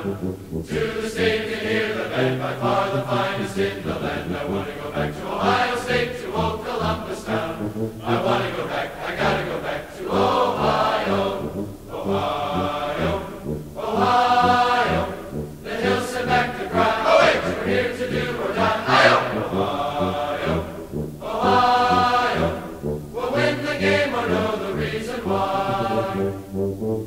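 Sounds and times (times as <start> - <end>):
low bass line: 0.0 - 0.9, 6.5 - 8.3, 10.6 - 18.4, 19.0 - 23.2
choir singing held phrases: 0.0 - 26.7.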